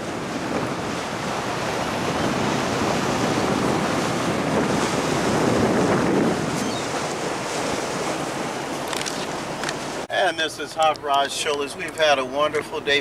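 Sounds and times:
wind on microphone: 0.0 - 10.1
sea water rushing past boat: 0.0 - 13.0.

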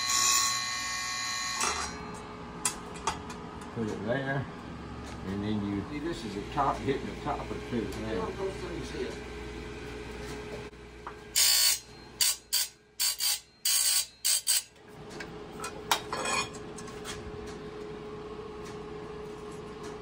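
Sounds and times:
grinder humming: 4.7 - 14.7.

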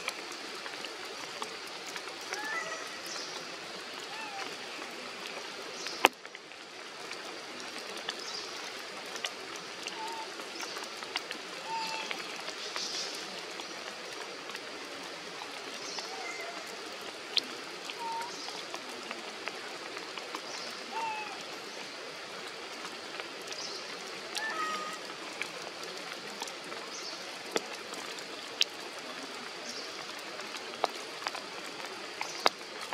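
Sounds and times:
rain hissing: 0.0 - 32.9
raindrops ticking: 0.0 - 32.9.

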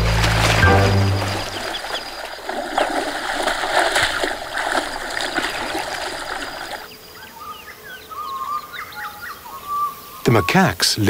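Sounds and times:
water splashing: 0.0 - 6.9.

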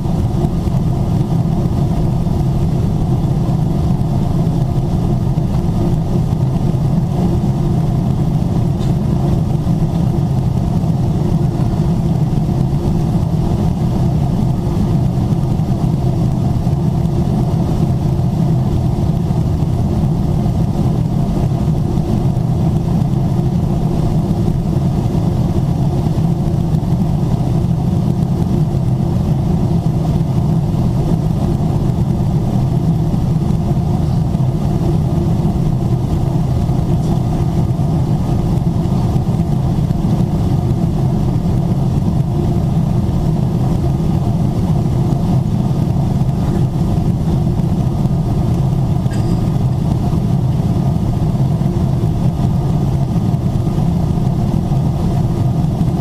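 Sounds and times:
jet engines droning: 0.0 - 56.0.

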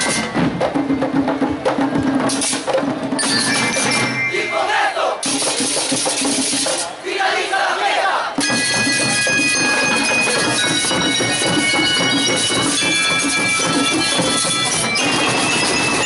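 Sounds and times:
snare and bass drums: 0.0 - 4.2, 5.2 - 7.0, 8.3 - 16.0
bell lyres ringing: 3.2 - 5.4, 8.4 - 16.0.

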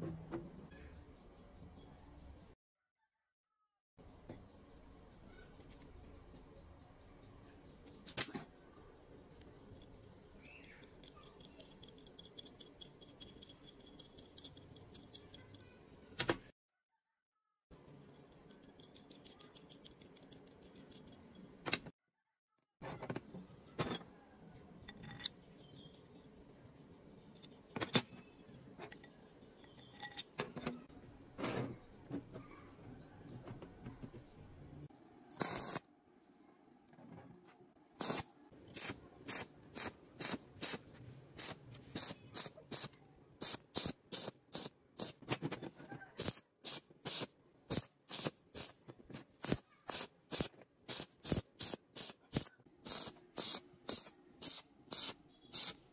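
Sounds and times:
steel parts clinking on metal: 9.7 - 15.7, 18.0 - 21.5, 24.8 - 25.5, 28.8 - 30.8.

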